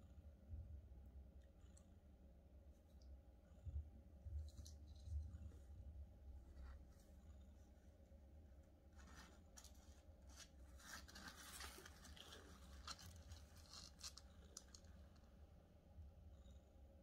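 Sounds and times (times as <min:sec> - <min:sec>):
faint scratchy rustles: 0:04.3 - 0:08.0, 0:08.8 - 0:15.3.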